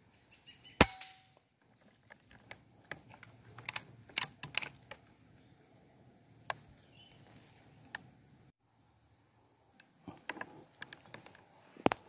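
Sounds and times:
air rifle clicks and knocks: 2.0s - 5.0s.

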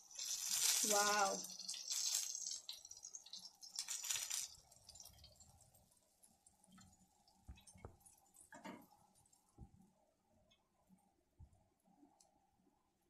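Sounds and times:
chicken sizzling in a pan: 0.0s - 9.7s.

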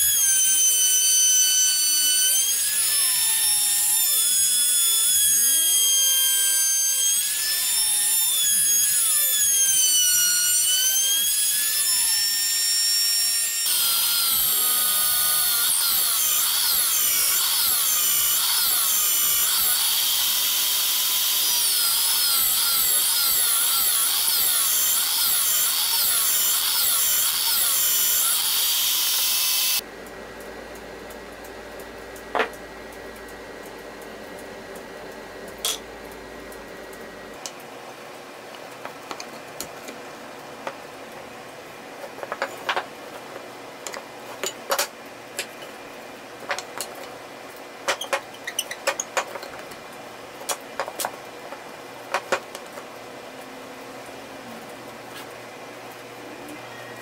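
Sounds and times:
drill press boring wood: 0.0s - 29.8s
high squealing tones: 0.0s - 29.8s.

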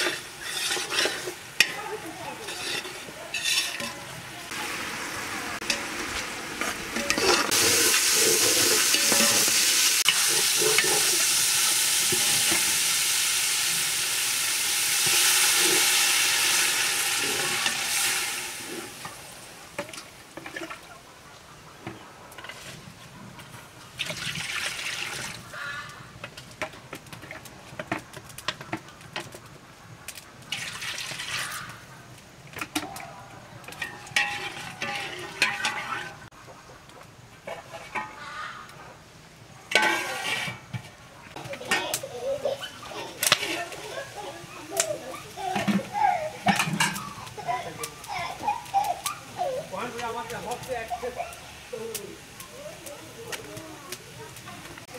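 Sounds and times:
curry boiling in metal pot: 0.0s - 20.9s, 22.4s - 36.4s, 37.4s - 54.9s.

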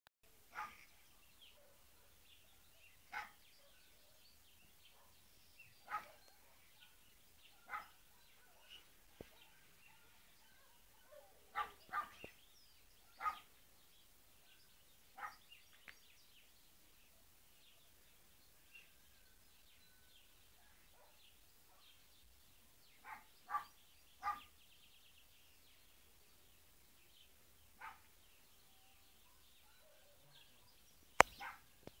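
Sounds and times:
dog barking: 0.5s - 0.9s, 3.1s - 3.8s, 5.8s - 12.3s, 13.2s - 13.5s, 15.2s - 15.4s, 20.8s - 21.9s, 23.0s - 24.5s, 27.8s - 28.1s, 29.3s - 30.7s, 31.3s - 31.7s.

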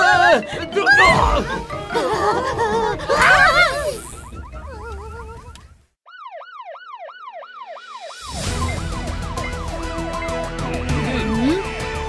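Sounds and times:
alarm siren wailing: 3.3s - 10.6s.

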